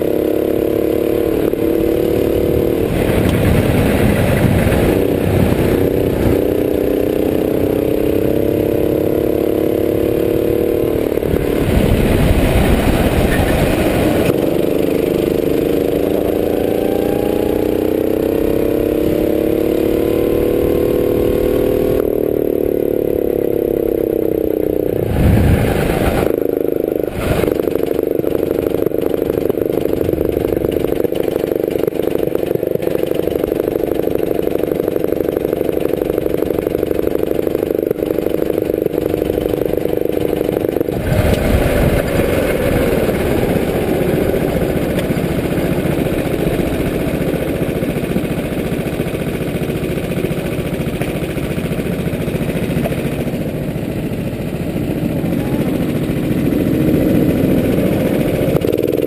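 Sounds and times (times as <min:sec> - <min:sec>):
go-kart engine: 0:00.0 - 0:59.0.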